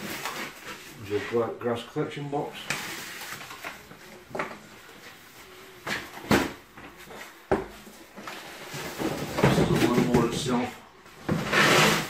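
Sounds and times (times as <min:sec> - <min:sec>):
plastic wrapping rustling: 0:00.0 - 0:01.8, 0:02.4 - 0:04.3.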